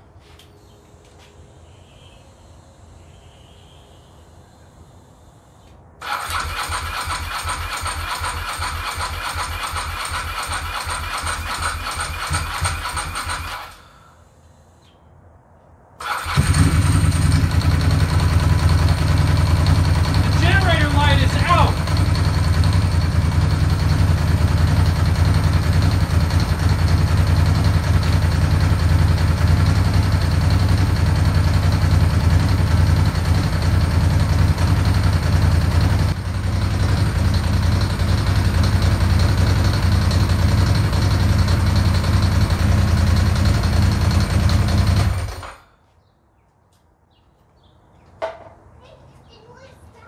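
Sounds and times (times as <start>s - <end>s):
motorcycle engine idling: 6.0s - 13.7s, 16.0s - 45.6s.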